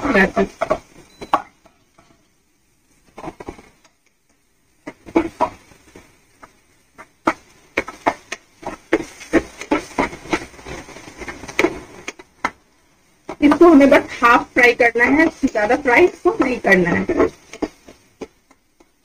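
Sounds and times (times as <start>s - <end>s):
spatula scraping a frying pan: 0.0s - 1.0s, 3.0s - 3.8s, 4.8s - 12.2s, 13.2s - 18.9s.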